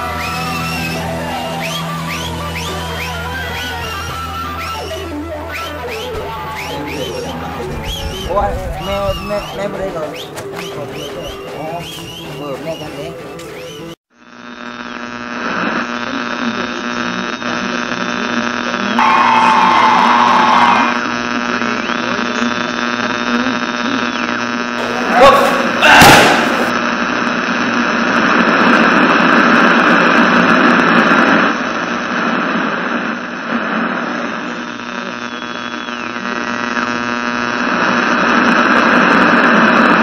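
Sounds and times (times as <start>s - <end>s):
sudden loud swells: 6.5s - 10.2s
rushing noise: 19.0s - 21.1s.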